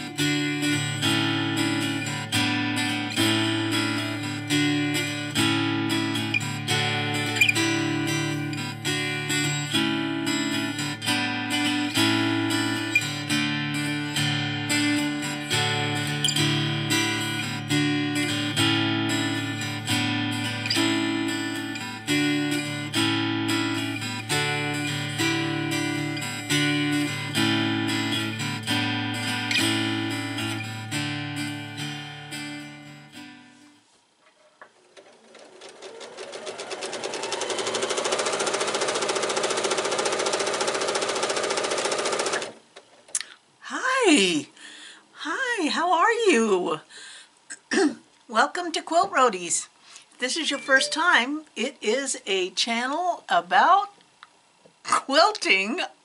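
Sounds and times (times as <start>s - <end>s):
strummed acoustic guitar: 0.0s - 33.8s, 35.0s - 42.6s.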